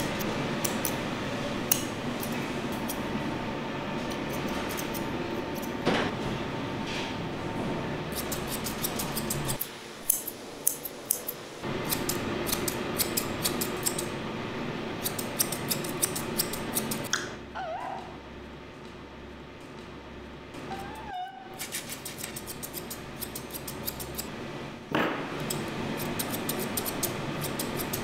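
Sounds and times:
steady background hum: 0.0s - 28.0s
shears snipping fur: 4.0s - 5.8s, 8.1s - 14.1s, 15.0s - 17.1s, 21.6s - 24.3s, 25.4s - 28.0s
dog whining: 17.5s - 18.2s, 20.6s - 21.6s.

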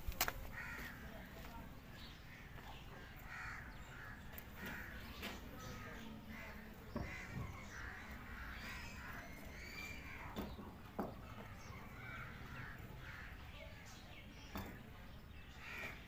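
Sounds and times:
crows cawing: 0.5s - 1.3s, 2.3s - 10.6s, 11.3s - 13.6s, 15.5s - 16.0s.

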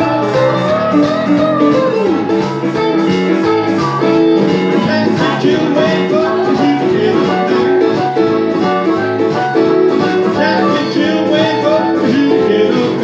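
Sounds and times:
electric guitar: 0.0s - 13.0s
electric keyboard: 0.0s - 13.0s.

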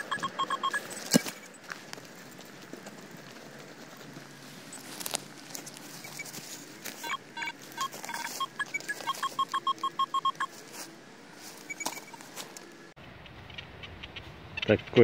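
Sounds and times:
metal detector beeping: 0.0s - 1.6s, 4.7s - 10.6s, 11.6s - 12.3s.

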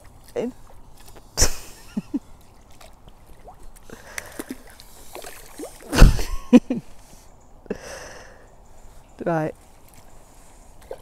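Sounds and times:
eel splashing in water: 2.5s - 6.3s.

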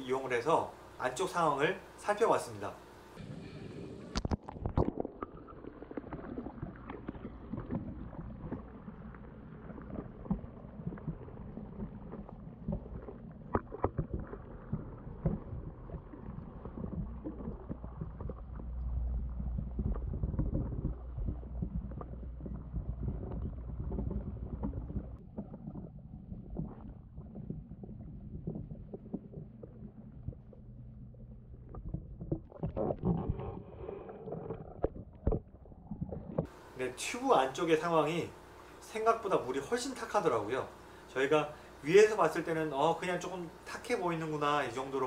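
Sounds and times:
muffled underwater rumble: 2.9s - 41.0s
air bubbles clicking and popping: 4.0s - 36.5s.

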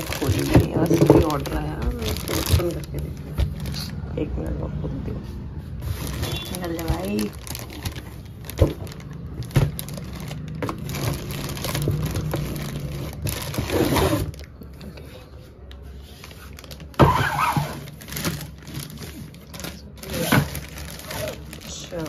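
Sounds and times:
plastic bag crinkling: 0.0s - 4.2s, 5.8s - 15.0s, 16.1s - 22.0s
cardboard box rustling: 5.8s - 14.5s
loud crackle: 6.0s - 14.5s.

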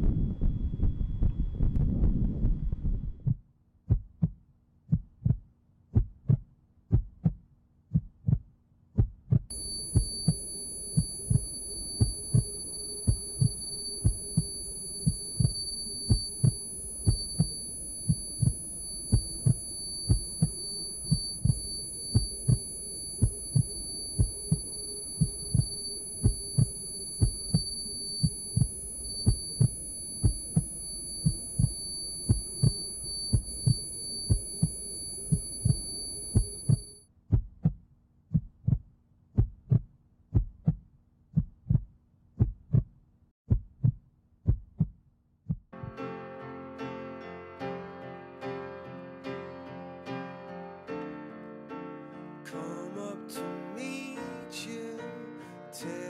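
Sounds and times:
low rumble: 0.0s - 3.4s, 9.2s - 37.8s
hum: 0.0s - 4.3s, 9.0s - 40.8s
heartbeat low beats: 0.0s - 46.0s
high-pitched ringing tone: 9.5s - 37.0s.

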